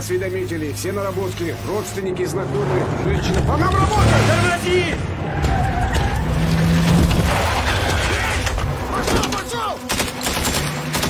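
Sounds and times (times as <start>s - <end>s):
engines running: 0.0s - 11.0s
vehicles skidding on gravel: 0.9s - 9.7s.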